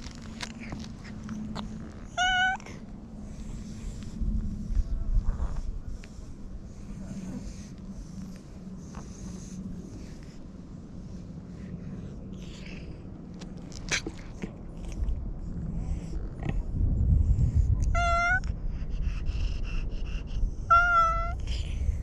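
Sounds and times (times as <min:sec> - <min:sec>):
low rumbling noise: 0:00.0 - 0:22.0
cat meowing: 0:02.1 - 0:02.8, 0:18.0 - 0:18.5, 0:20.7 - 0:21.4.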